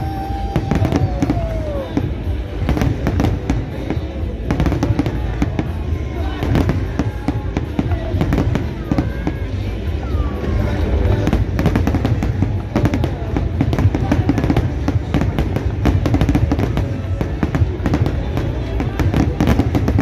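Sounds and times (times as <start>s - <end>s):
fireworks bangs and crackles: 0.0s - 20.0s
music playing: 0.0s - 20.0s.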